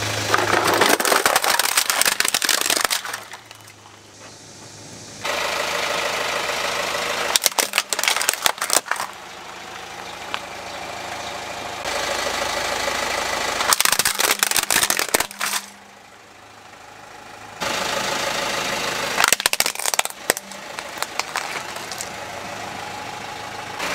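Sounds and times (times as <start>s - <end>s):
car engine running: 0.0s - 23.9s
plastic toys crackling and snapping: 0.2s - 3.9s, 7.3s - 9.2s, 13.6s - 15.8s, 19.2s - 22.2s.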